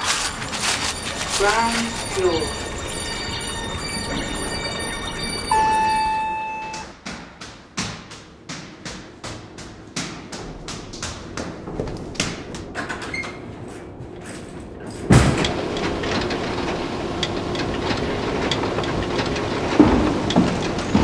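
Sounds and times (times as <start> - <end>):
rattling rumble with ticks: 10.6 - 21.0.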